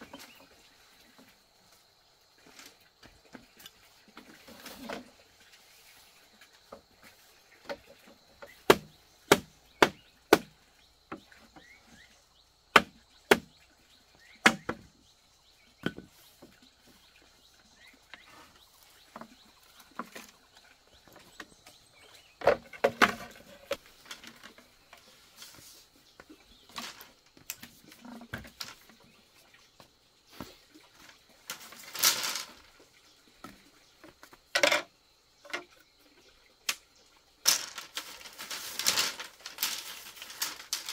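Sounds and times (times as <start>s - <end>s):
handling and rustling: 0.0s - 8.7s, 17.8s - 29.2s, 30.3s - 32.8s, 37.4s - 40.9s
sharp wooden knocks and chops: 8.5s - 10.6s, 12.7s - 13.5s, 14.4s - 14.9s.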